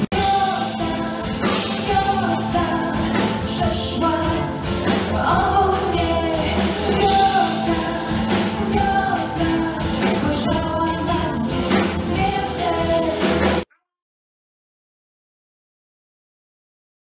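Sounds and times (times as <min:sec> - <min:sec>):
live band playing pop: 0:00.0 - 0:13.6
woman singing: 0:00.0 - 0:13.6.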